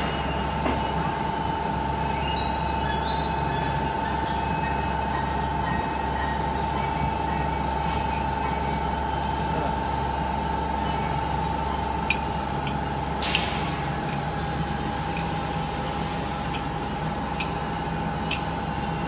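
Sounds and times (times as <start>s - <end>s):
conveyor machine whine and hum: 0.0s - 19.0s
faint repeating squeak: 1.8s - 9.4s, 10.8s - 13.0s.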